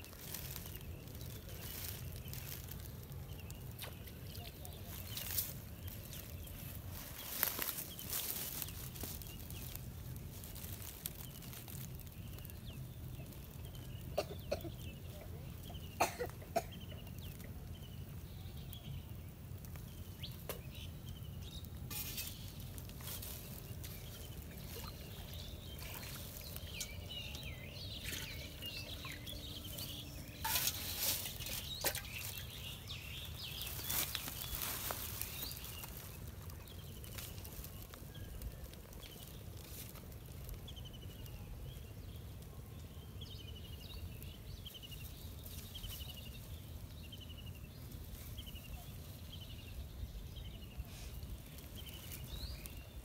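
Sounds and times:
small birds chirping: 0:00.0 - 0:53.0
water sloshing in metal pot: 0:28.0 - 0:29.2, 0:30.4 - 0:32.4.

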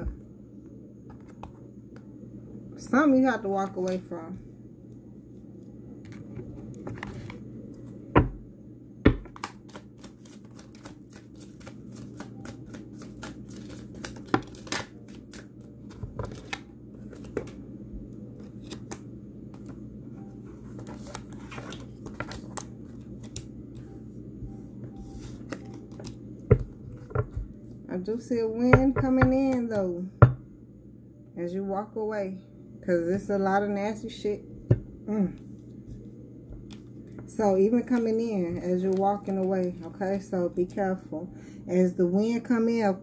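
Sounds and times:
cards being shuffled: 0:09.2 - 0:17.6, 0:18.4 - 0:19.8, 0:20.6 - 0:23.9, 0:25.0 - 0:27.4.

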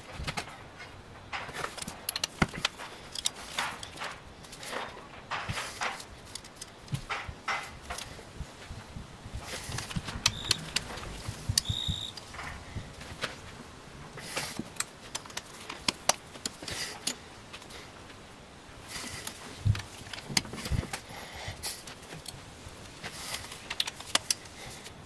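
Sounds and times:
socket wrench clicking: 0:09.8 - 0:10.9.

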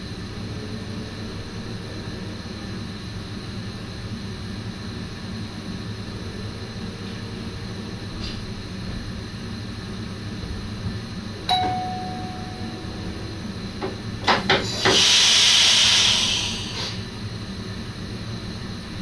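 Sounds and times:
single chime: 0:11.5 - 0:13.5
compressed air hiss: 0:14.5 - 0:17.1.

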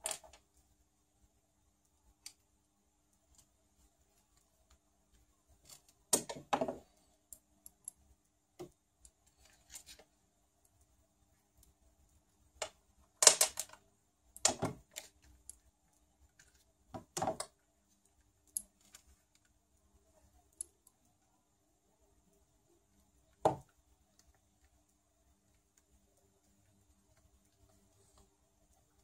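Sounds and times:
small parts clicking and clattering: 0:00.0 - 0:00.5, 0:04.2 - 0:10.8, 0:12.6 - 0:19.6.

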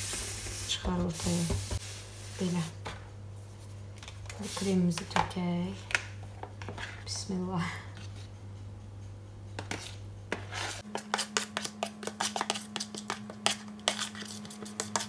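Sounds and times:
metal spoon scraping plastic bowl: 0:09.6 - 0:15.0.

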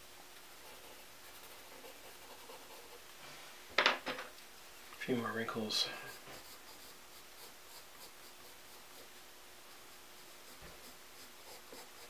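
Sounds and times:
pencil scratching on paper: 0:00.5 - 0:03.0, 0:06.0 - 0:09.2, 0:09.8 - 0:12.0.

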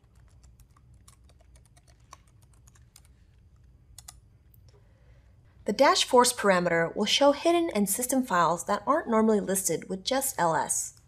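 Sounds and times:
faint keyboard typing: 0:00.0 - 0:04.8.

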